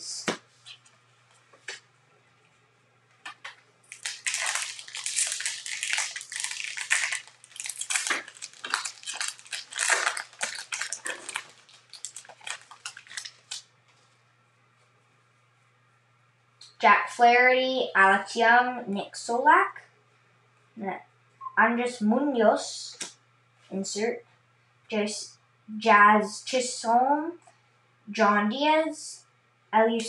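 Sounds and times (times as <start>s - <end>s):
foil wrapper crinkling and tearing: 3.9s - 13.7s.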